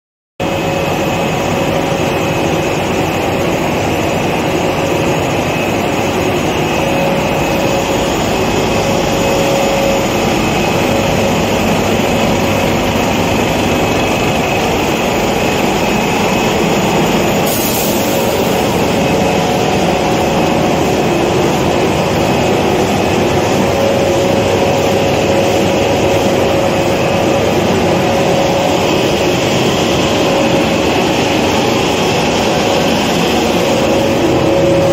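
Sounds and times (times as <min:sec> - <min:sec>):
machine droning: 0:00.4 - 0:34.9.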